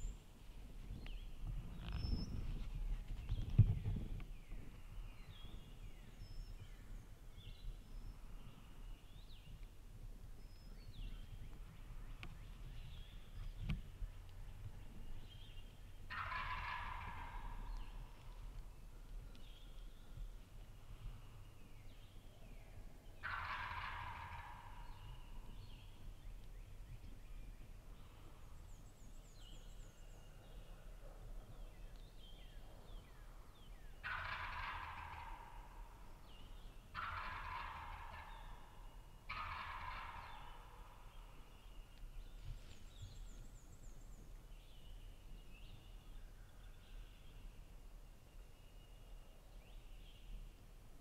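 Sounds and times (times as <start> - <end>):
wild turkey gobbling: 16.1 - 18.3, 23.1 - 25.8, 34.0 - 41.6.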